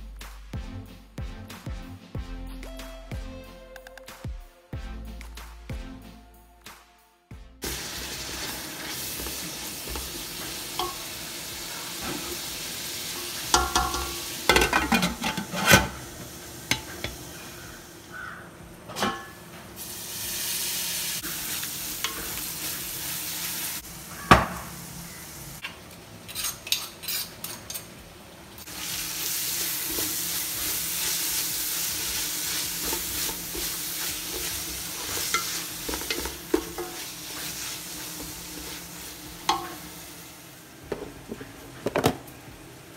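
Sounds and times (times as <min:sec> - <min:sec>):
onions sizzling in oil: 0:07.6 - 0:41.7
wooden spatula scraping pot: 0:13.5 - 0:16.1, 0:29.7 - 0:39.8.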